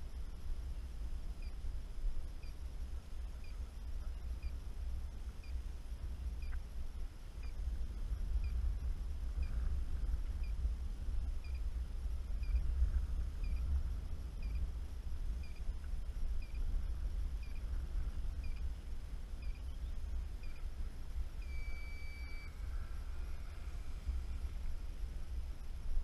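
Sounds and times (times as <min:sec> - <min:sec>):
wind rumbling on microphone: 0:00.0 - 0:26.0
steady high beep: 0:11.4 - 0:11.6, 0:12.4 - 0:12.7, 0:13.4 - 0:13.7, 0:14.4 - 0:14.6, 0:15.4 - 0:15.7, 0:16.4 - 0:16.6, 0:17.4 - 0:17.6, 0:18.4 - 0:18.6, 0:19.4 - 0:19.8, 0:20.4 - 0:20.7, 0:21.4 - 0:24.1
short high chirps: 0:21.4 - 0:22.6.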